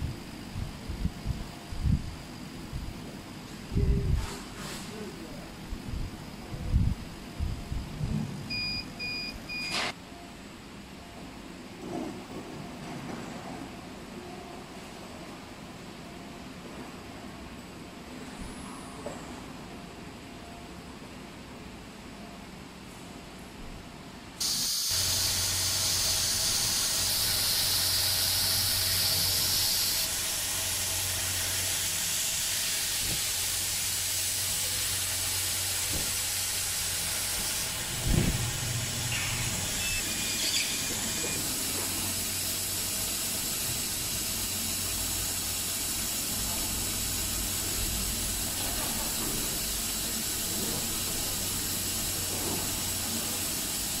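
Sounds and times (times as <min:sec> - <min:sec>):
blower and fan hissing: 0:00.0 - 0:09.9, 0:24.1 - 0:54.0
low machine hum: 0:19.7 - 0:53.7.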